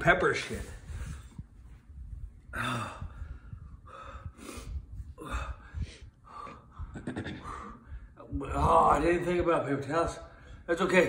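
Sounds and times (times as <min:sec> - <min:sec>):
man gasping and breathing hard: 0:02.5 - 0:08.2.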